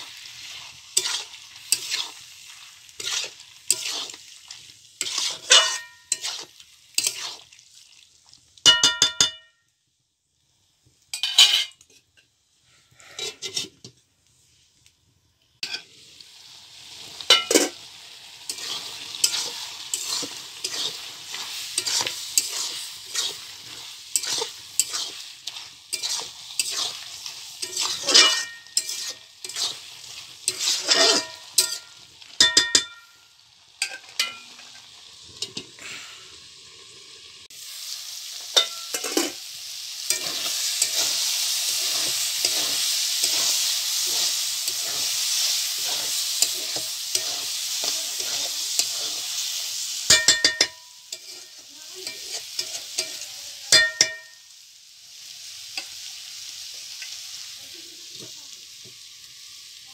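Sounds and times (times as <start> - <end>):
metal spatula scraping a pan: 0.0 - 7.6, 11.1 - 12.2, 13.0 - 14.0, 15.6 - 15.9, 17.2 - 33.2, 38.4 - 54.4
meat sizzling: 0.0 - 59.9.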